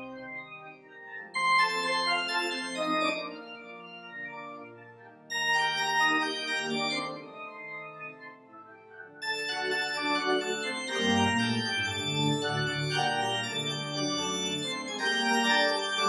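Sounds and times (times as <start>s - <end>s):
church organ chords: 0.0s - 16.0s.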